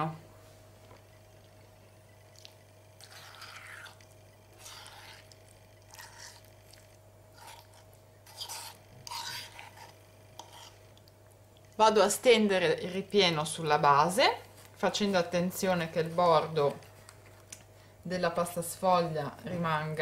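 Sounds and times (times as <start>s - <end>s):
spoon scraping mashed pumpkin: 2.4s - 17.7s.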